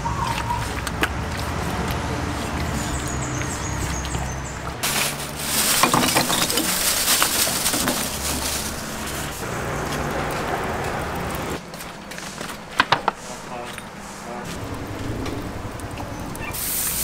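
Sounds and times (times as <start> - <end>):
charcoal clattering in metal grill: 4.8 - 9.4.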